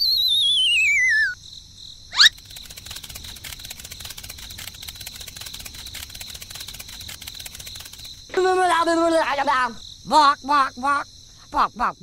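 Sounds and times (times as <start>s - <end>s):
warbling whistle falling in pitch: 0.0s - 1.4s
crickets chirping: 0.0s - 12.0s.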